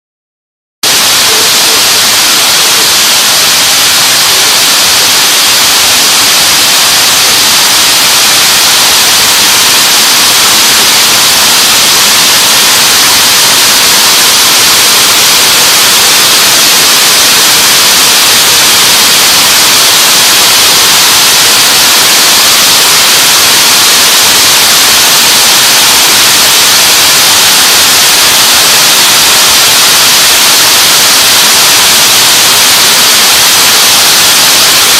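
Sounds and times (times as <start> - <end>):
braiding machines running: 0.8 - 34.9.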